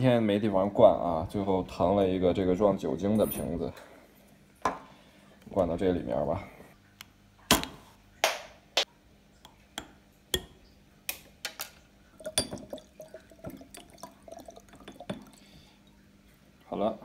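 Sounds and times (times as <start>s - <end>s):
water trickling into glass jar: 12.0s - 16.7s.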